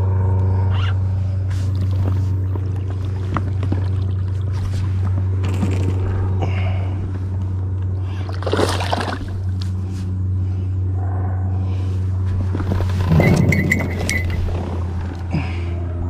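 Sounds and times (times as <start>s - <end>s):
steady low hum: 0.0s - 16.0s
gear rustling and knocking: 12.2s - 15.3s.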